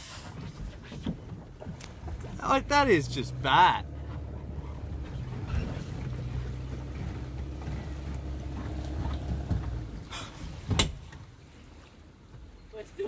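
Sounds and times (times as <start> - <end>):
vehicle engine running: 2.0 - 10.4.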